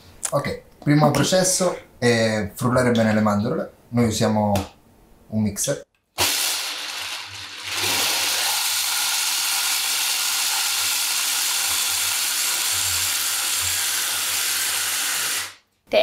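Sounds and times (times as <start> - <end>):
electric chopper grinding nuts: 6.2 - 15.6.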